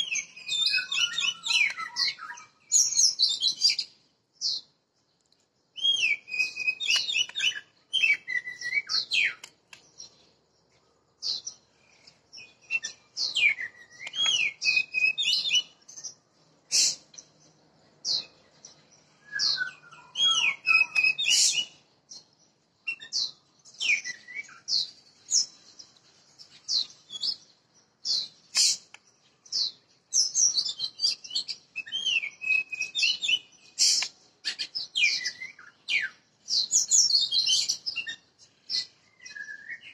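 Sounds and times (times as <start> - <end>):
bird singing whistles: 0.0 - 3.9, 5.8 - 9.4, 12.4 - 16.1, 19.1 - 21.8, 22.8 - 25.5, 29.5 - 39.9.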